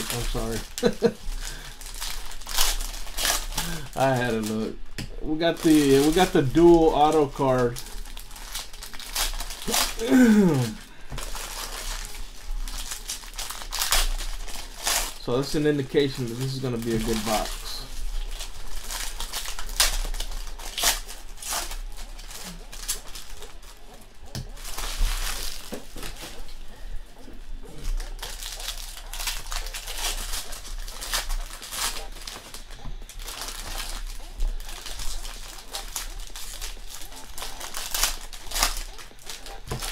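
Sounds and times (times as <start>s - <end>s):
foil wrappers crinkling and tearing: 0.0s - 39.9s.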